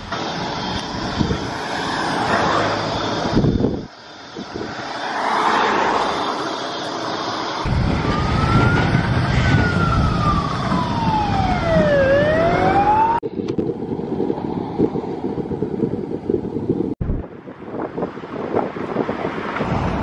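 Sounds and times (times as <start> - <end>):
street traffic rumble: 0.0 - 20.0
wind rumble: 0.0 - 20.0
emergency siren wailing: 5.0 - 13.3.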